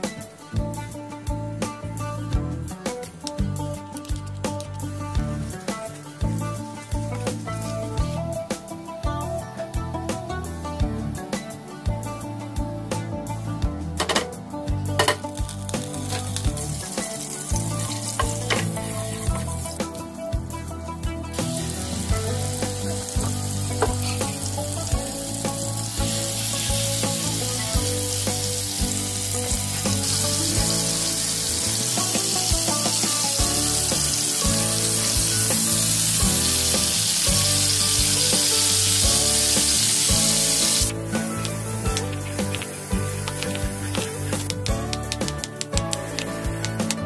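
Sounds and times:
chicken sizzling in a pan: 15.0 - 20.0, 21.3 - 44.8.

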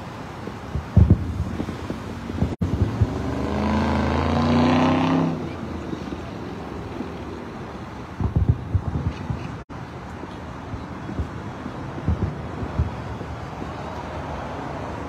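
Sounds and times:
distant fireworks thumps: 0.4 - 4.0, 8.2 - 9.6, 10.6 - 13.9
car passing: 1.0 - 8.4.

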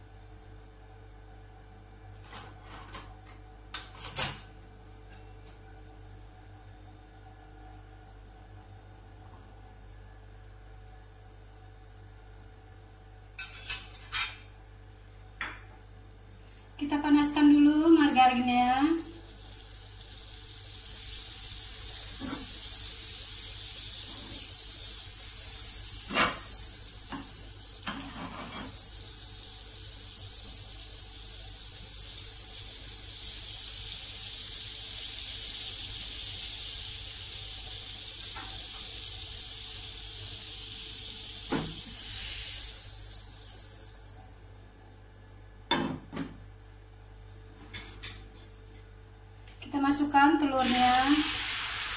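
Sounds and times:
margarine sizzling in a pan: 17.4 - 44.2, 50.5 - 51.9.

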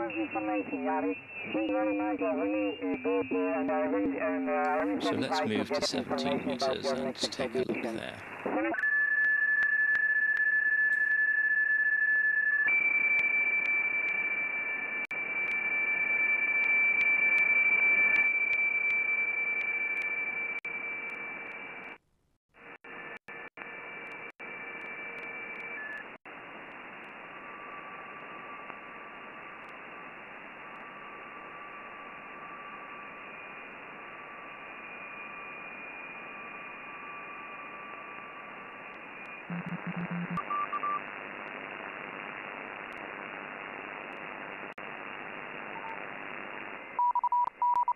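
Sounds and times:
radio band hiss: 0.0 - 8.7.

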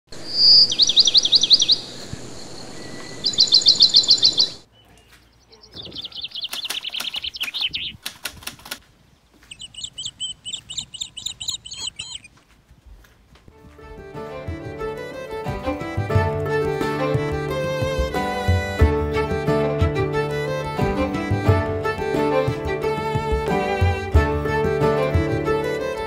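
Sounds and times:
songbirds chirping: 0.2 - 12.8
sharp clicks: 6.2 - 8.8.

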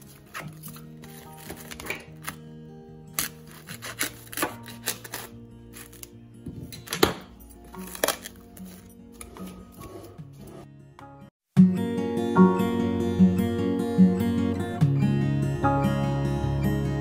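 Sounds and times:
background music with held notes: 0.0 - 17.0.

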